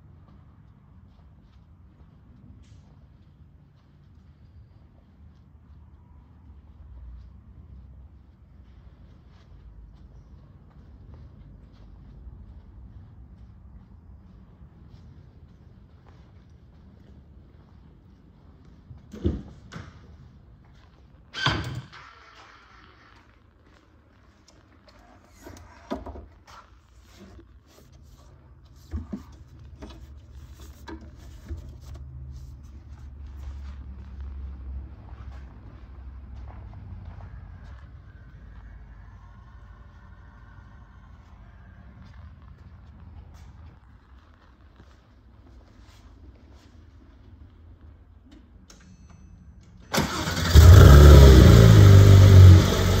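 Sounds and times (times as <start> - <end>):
car engine idling: 49.9 - 53.0.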